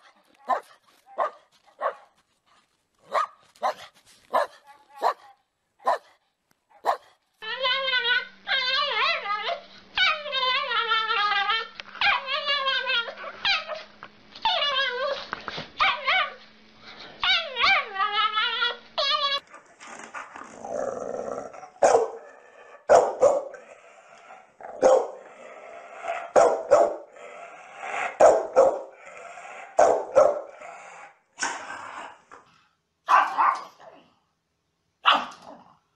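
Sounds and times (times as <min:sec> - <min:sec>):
dog barking: 0:00.5 - 0:02.1, 0:03.1 - 0:06.2, 0:06.8 - 0:07.2, 0:21.8 - 0:22.2, 0:22.9 - 0:23.6, 0:24.8 - 0:25.2, 0:26.3 - 0:27.0, 0:28.2 - 0:28.9, 0:29.8 - 0:30.5, 0:33.1 - 0:33.8, 0:35.0 - 0:35.4.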